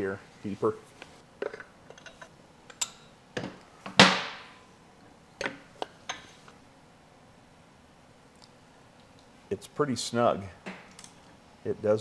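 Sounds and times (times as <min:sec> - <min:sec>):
metal tools clinking and knocking: 0:01.4 - 0:03.1.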